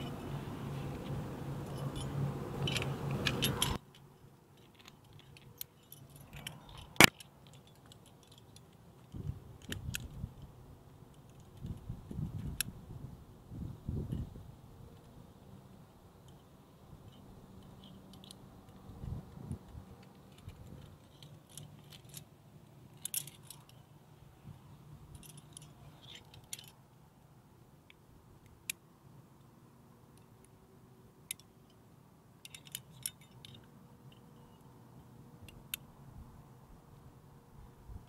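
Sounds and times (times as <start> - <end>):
metal climbing gear clinking: 1.0 - 10.5, 11.1 - 12.7, 16.2 - 24.0, 25.0 - 26.9, 31.2 - 31.8, 32.4 - 34.7.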